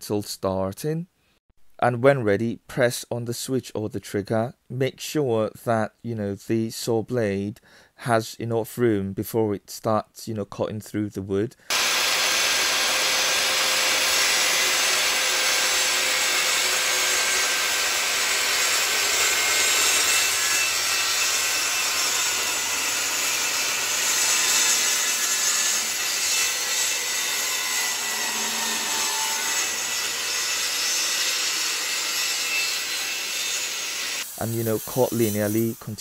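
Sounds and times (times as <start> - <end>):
circular saw cutting plywood: 11.7 - 36.0.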